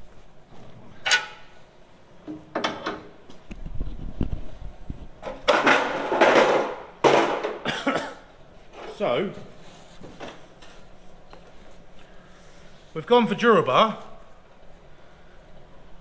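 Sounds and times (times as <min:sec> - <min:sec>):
metal sheet knocks and clanks: 0:05.3 - 0:07.6.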